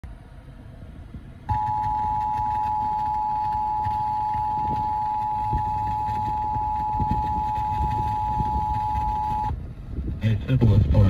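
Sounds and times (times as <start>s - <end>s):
low car cabin rumble: 0.0s - 11.0s
two-tone alert signal: 1.5s - 9.5s.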